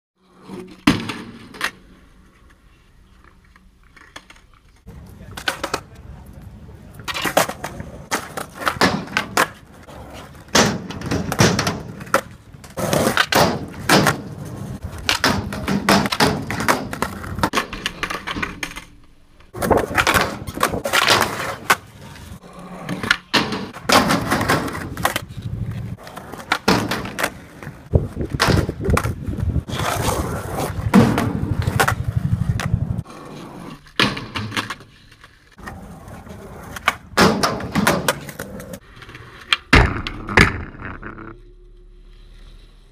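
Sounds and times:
skateboard clacking on ground and metal: 0:00.2 - 0:41.6
skateboard wheels rolling on concrete: 0:00.2 - 0:42.9.

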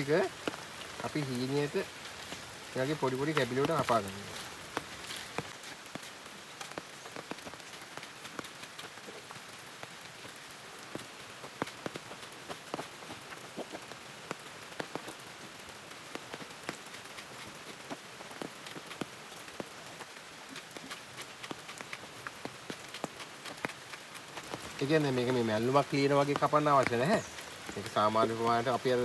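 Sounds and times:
steady hiss: 0:00.0 - 0:29.0.

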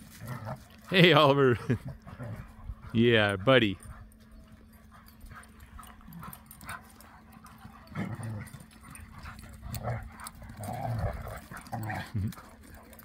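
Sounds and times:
paws scuffing on dry ground: 0:00.0 - 0:13.0
dog grunts and whimpers: 0:07.5 - 0:12.8.

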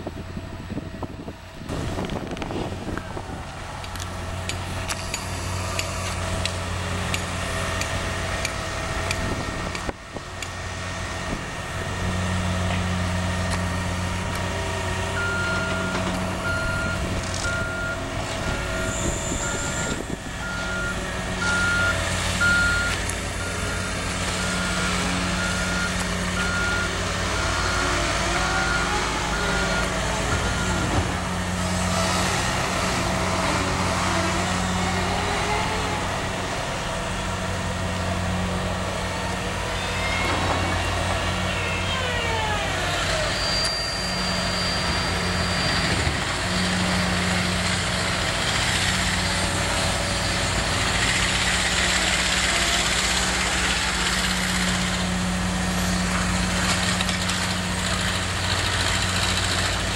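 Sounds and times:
excavator diesel engine running: 0:00.0 - 0:59.9
reversing alarm beeping: 0:15.1 - 0:31.2.

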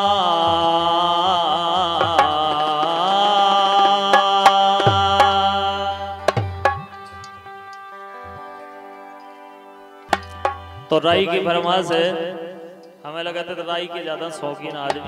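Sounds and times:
man singing: 0:00.0 - 0:07.0, 0:10.8 - 0:15.0
harmonium drone: 0:00.0 - 0:15.0
hand drum booming: 0:06.2 - 0:07.1.

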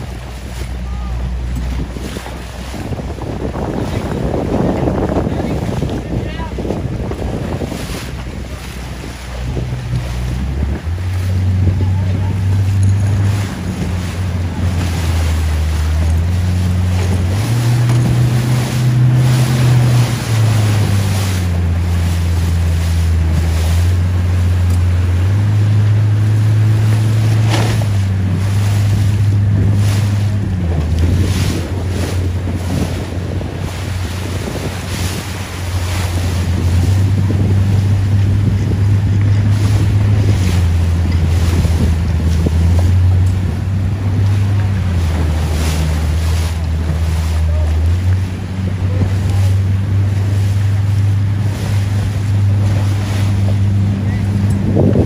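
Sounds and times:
water splashing along hull: 0:00.0 - 0:55.0
wind buffeting microphone: 0:00.0 - 0:55.0.

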